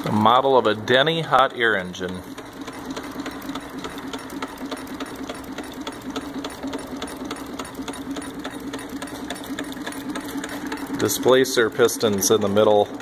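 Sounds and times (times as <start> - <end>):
hot air engine clicking: 0.0 - 13.0.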